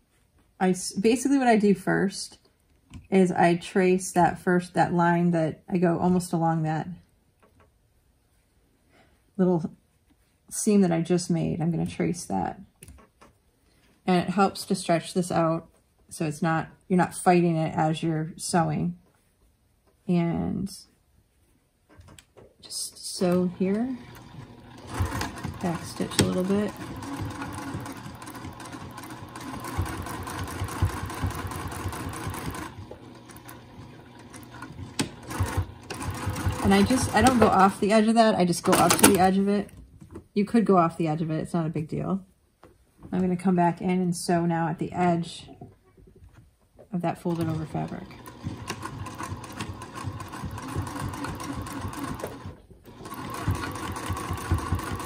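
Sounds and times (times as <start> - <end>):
sewing machine stitching: 23.2 - 39.4, 47.2 - 55.0.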